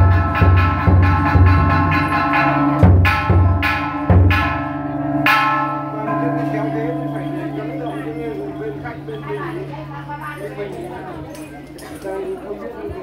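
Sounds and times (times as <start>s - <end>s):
low drum strokes: 0.0s - 11.2s
large bell ringing: 0.0s - 12.7s.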